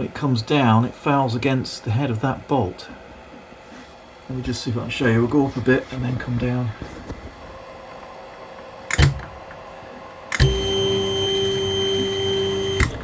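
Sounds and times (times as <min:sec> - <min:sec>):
electric motor hum and whine: 0:01.8 - 0:13.0
sharp clicks: 0:08.9 - 0:09.3.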